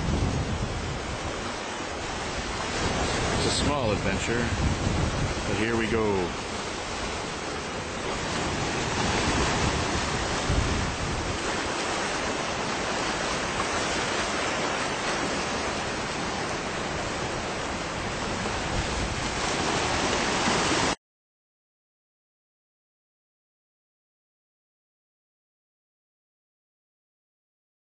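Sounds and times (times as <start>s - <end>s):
rough sea surf: 0.0s - 21.0s
wind on microphone: 0.0s - 21.0s.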